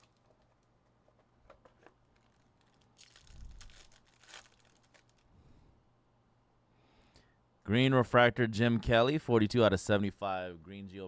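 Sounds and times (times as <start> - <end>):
wrapper crinkling and tearing: 0.0 - 5.3.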